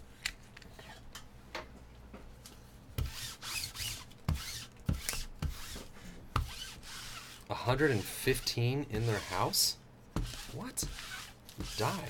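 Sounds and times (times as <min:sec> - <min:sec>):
lint roller crackling on mat: 0:10.2 - 0:12.0.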